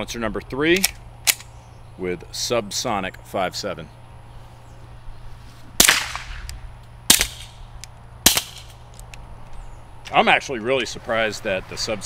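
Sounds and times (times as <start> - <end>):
suppressed pistol shots: 5.8 - 8.8.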